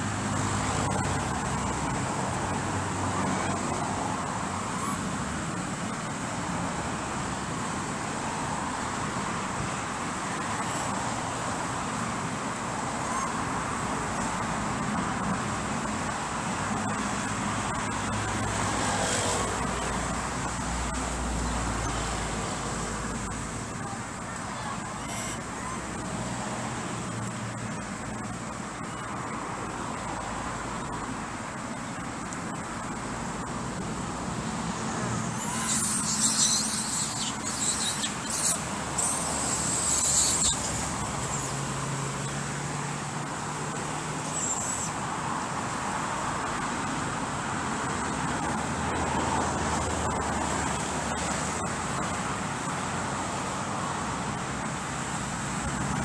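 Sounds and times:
road traffic hum: 0.0s - 56.0s
loud high hissing: 35.2s - 42.6s, 44.2s - 45.1s.

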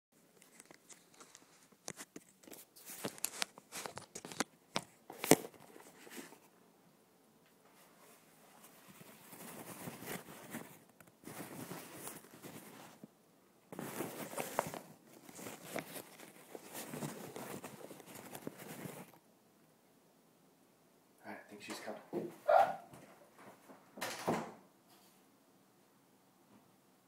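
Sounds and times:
rustling handling noise: 0.2s - 6.5s, 7.6s - 19.2s.

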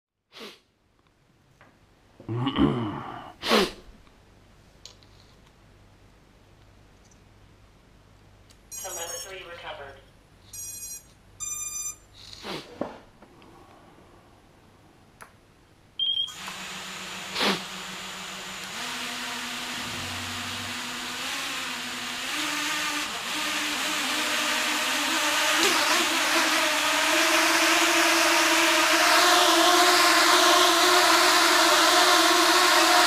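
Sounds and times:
electronic beeps: 8.7s - 9.3s, 10.5s - 12.0s
drone motors and propellers whirring: 16.3s - 33.0s.

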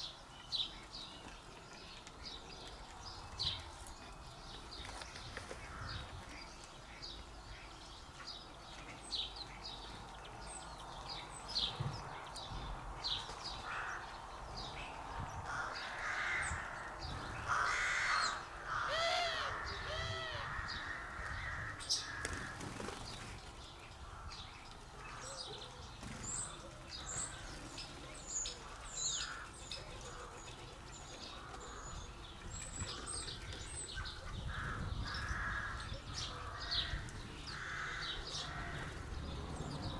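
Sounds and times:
small birds chirping: 0.0s - 39.9s
large bird harsh calls: 15.4s - 39.9s.

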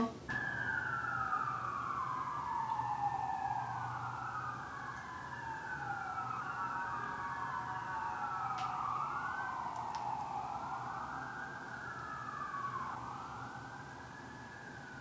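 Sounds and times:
siren wailing: 0.0s - 15.0s
faint clicks: 9.7s - 10.1s.

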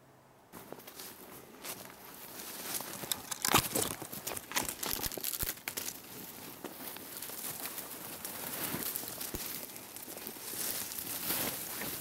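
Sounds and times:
branches crackling and snapping: 0.9s - 12.0s.

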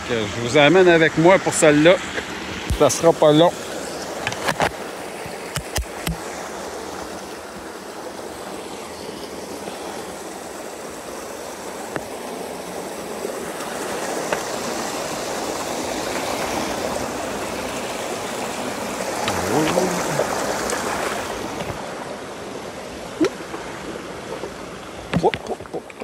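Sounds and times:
stream rushing over stones: 0.0s - 26.0s
sharp clicks: 5.5s - 6.2s.

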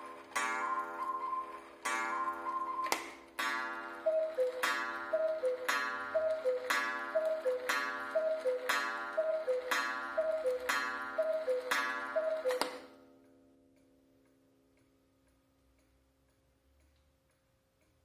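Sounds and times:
cuckoo clock call: 0.0s - 13.1s
clock ticking: 0.0s - 18.0s.

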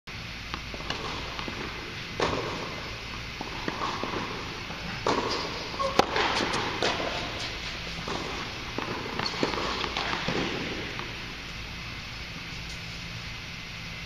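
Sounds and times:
tennis ball bouncing: 0.4s - 13.0s
tennis ball hit by rackets: 0.5s - 11.6s.

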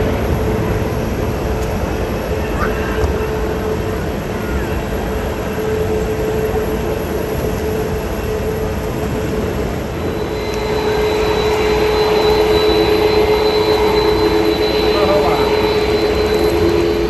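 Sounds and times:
jet engines humming: 0.0s - 17.0s
high whistling tone: 9.8s - 17.0s.

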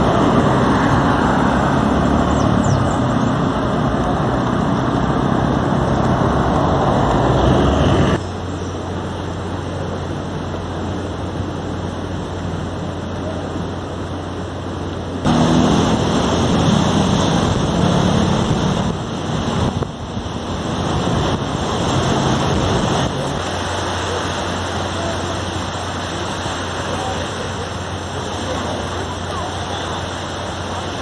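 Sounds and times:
surf: 0.0s - 31.0s
low drone: 14.5s - 30.0s
wind on microphone: 15.3s - 23.7s.

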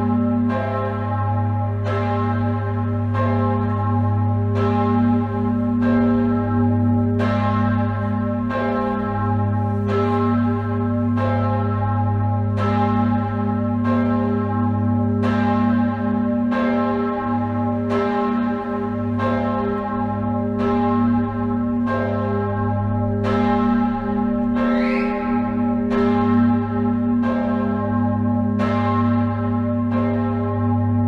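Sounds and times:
church bell ringing: 0.0s - 31.0s
deep bell hum: 22.7s - 30.0s.

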